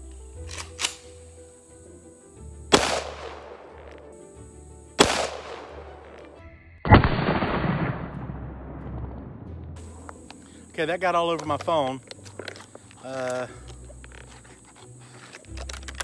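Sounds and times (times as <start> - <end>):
shotgun blasts: 2.7 - 3.9, 5.0 - 6.2, 6.9 - 9.0.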